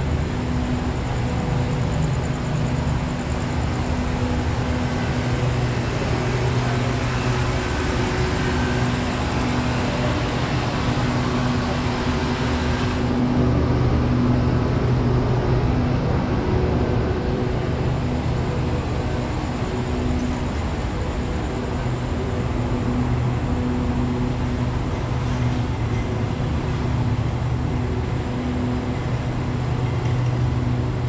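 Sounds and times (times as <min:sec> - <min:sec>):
diesel train idling: 0:00.0 - 0:14.6.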